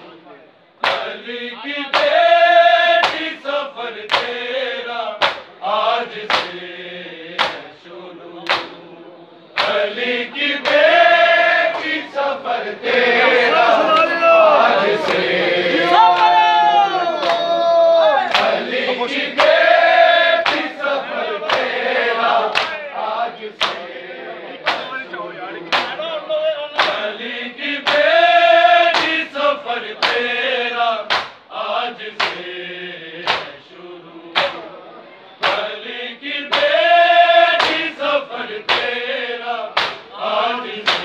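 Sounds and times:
hands slapping chests: 0.8 - 1.1, 1.9 - 2.2, 3.0 - 3.4, 4.1 - 4.4, 5.2 - 5.5, 6.2 - 6.6, 7.3 - 7.7, 8.4 - 8.8, 9.5 - 9.8, 10.6 - 10.9, 11.7 - 12.1, 17.2 - 17.5, 18.2 - 18.7, 19.3 - 19.6, 20.4 - 20.8, 21.4 - 21.8, 22.4 - 22.8, 23.6 - 23.9, 24.7 - 24.9, 25.7 - 26.0, 26.8 - 27.1, 27.8 - 28.1, 28.9 - 29.2, 30.0 - 30.3, 31.1 - 31.5, 32.2 - 32.5, 33.2 - 33.6, 34.3 - 34.6, 35.4 - 35.7, 36.5 - 36.8, 37.6 - 38.0, 38.7 - 39.0, 39.8 - 40.1
men chanting together: 0.8 - 41.0.

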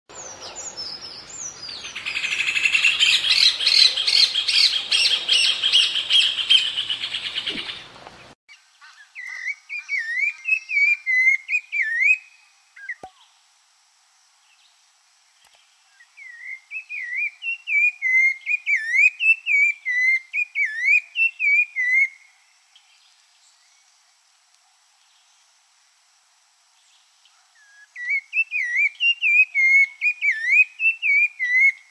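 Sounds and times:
thrush singing whistled phrases: 9.4 - 13.1, 16.2 - 22.2, 28.0 - 31.8.

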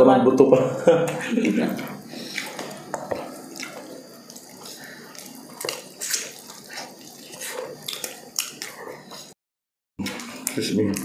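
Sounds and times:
wet chewing and lip smacks: 2.2 - 9.4.

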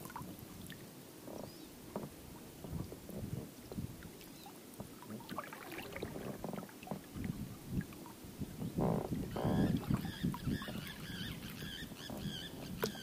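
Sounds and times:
water sloshing: 0.0 - 13.0
oars knocking: 4.8 - 7.1, 8.6 - 13.0
buzzing creaks: 8.6 - 13.0.

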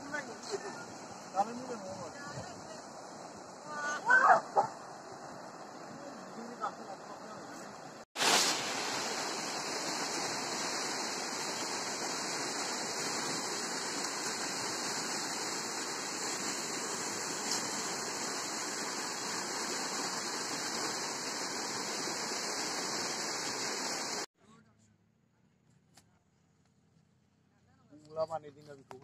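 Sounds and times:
river rushing over stones: 7.8 - 24.3.

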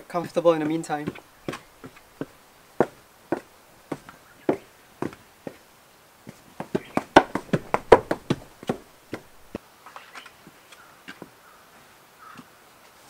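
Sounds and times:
wooden sandals clacking on ground: 0.0 - 5.6, 6.2 - 9.6
faint taps: 6.6 - 9.6
light rustle: 9.4 - 13.0.

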